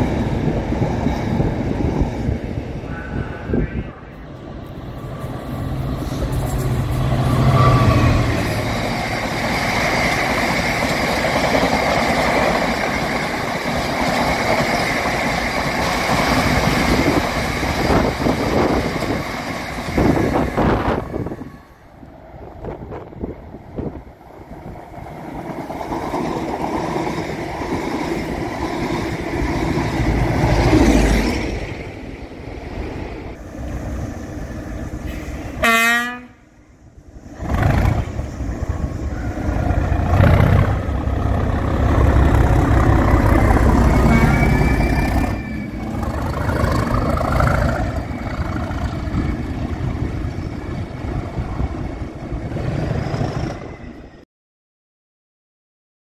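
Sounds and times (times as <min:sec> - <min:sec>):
diesel locomotive engine: 0:00.0 - 0:54.2
train horn blast: 0:35.1 - 0:36.6.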